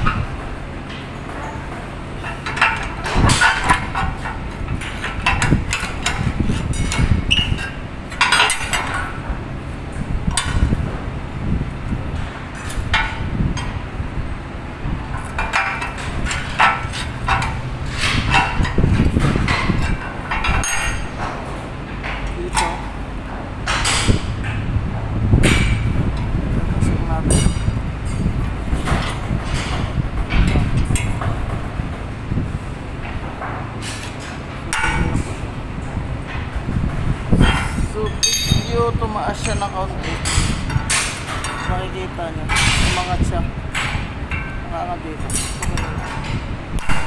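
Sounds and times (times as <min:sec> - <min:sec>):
metal bending bar clanking: 0:00.0 - 0:09.3, 0:15.1 - 0:23.0, 0:23.6 - 0:47.0
steady low hum: 0:00.0 - 0:47.0
metal tools clanking on table: 0:37.4 - 0:41.7.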